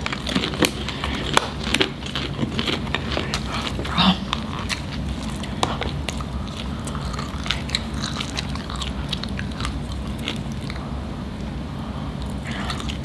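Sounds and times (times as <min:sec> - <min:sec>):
people chewing crunchy popcorn: 0:00.0 - 0:11.0, 0:11.8 - 0:13.0.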